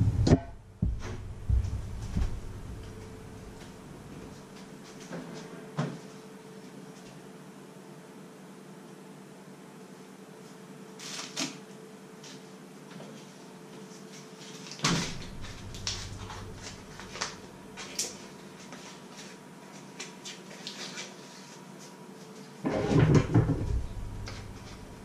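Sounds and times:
paper wrapper crackling: 14.4 - 21.4
refrigerator door shutting: 14.8 - 16.9, 22.6 - 24.8
knocking and clatter: 22.8 - 24.6.

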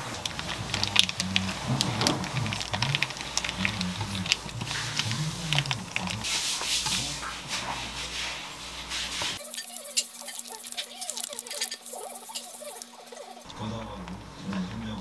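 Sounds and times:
sticky rice paper clicking: 0.0 - 7.7
rice paper rustling: 0.0 - 15.0.

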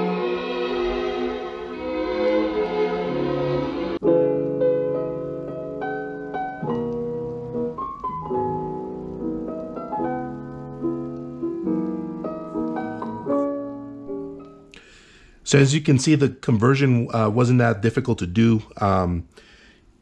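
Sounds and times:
solo piano music: 3.1 - 14.7.

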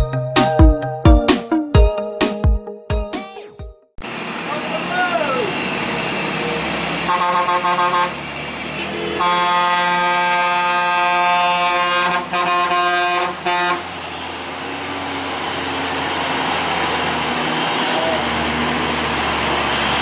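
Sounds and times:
truck engines and traffic: 4.0 - 20.0
truck air horn: 6.5 - 14.6.

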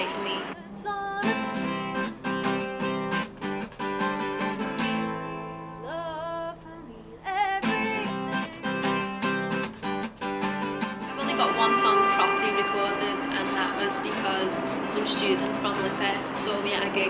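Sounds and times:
woman singing: 0.0 - 2.6, 5.8 - 9.2, 11.1 - 17.0
acoustic guitar strumming: 1.2 - 6.3, 7.4 - 17.0.

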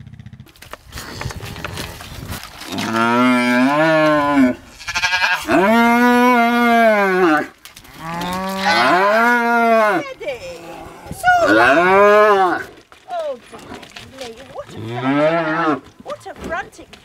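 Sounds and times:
rustling and small knocks: 0.5 - 4.3, 7.4 - 8.9, 12.4 - 17.0
calf bawling: 2.6 - 16.8.

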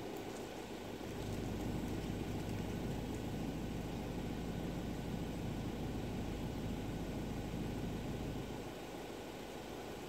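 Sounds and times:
van engine idling: 1.2 - 8.8.

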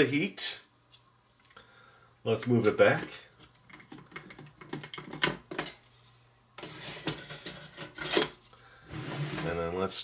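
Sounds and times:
metal pan clicking and scraping: 6.6 - 8.4.

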